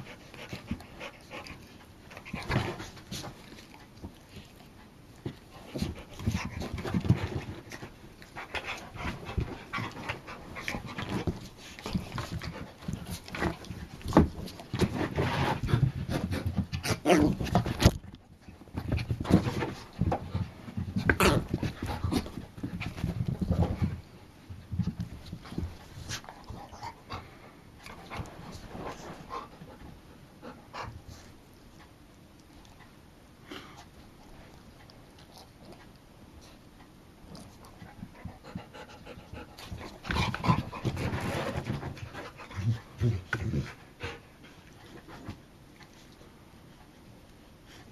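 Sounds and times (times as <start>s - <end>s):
dogs panting: 0.0s - 17.0s, 33.4s - 46.3s
dogs scuffling: 0.1s - 27.0s.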